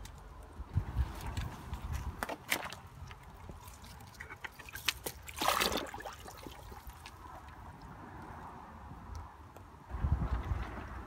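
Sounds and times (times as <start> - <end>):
water sloshing in a plastic tub: 1.0 - 7.9.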